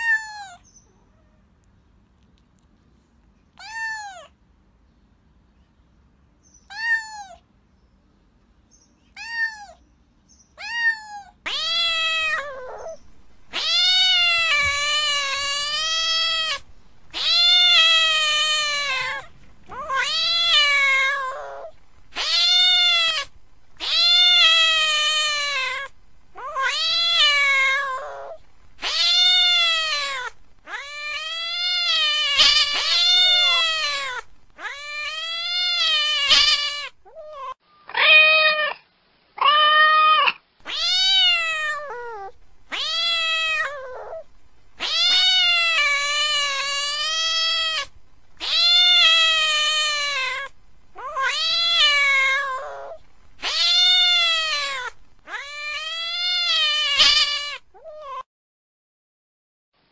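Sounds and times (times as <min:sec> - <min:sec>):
cat meowing: 0:00.0 - 0:01.4, 0:03.6 - 0:04.4, 0:06.6 - 0:07.4, 0:09.1 - 0:09.8, 0:10.6 - 0:38.8, 0:39.4 - 0:58.2.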